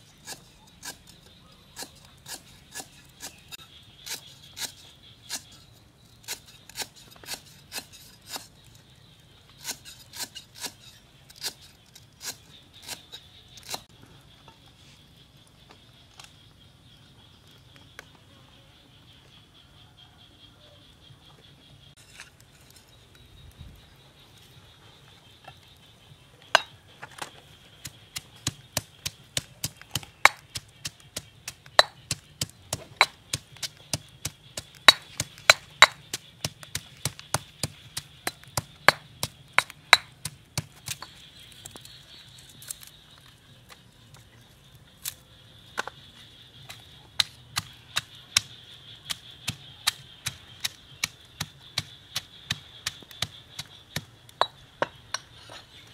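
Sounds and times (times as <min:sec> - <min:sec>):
pestle pounding in stone mortar: 0:27.8 - 0:41.1, 0:47.2 - 0:55.2.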